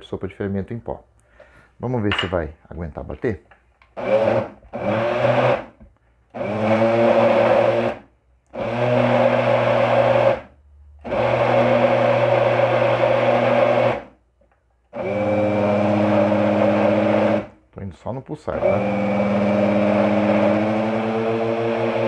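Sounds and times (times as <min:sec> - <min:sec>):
blender motor pulsing: 0:04.0 - 0:14.1, 0:14.9 - 0:17.6, 0:18.5 - 0:22.0.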